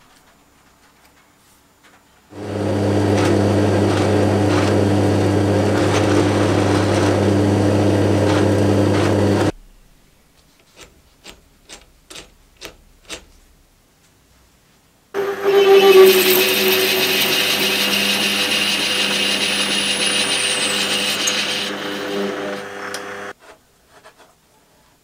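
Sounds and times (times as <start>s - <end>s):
drill press drilling metal: 2.4s - 9.5s, 15.2s - 23.3s.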